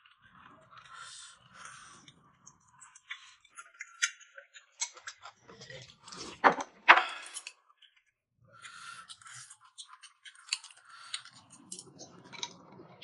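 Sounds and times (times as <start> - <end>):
chewing: 0.0 - 6.4, 7.0 - 13.0
chopsticks clicking against bowls: 9.1 - 12.8.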